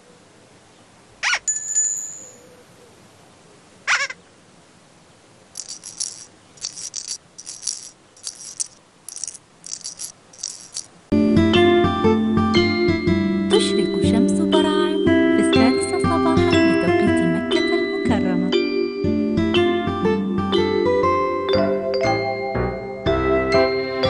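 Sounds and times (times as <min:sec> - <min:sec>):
short jingly rattles: 0:05.6 - 0:11.0.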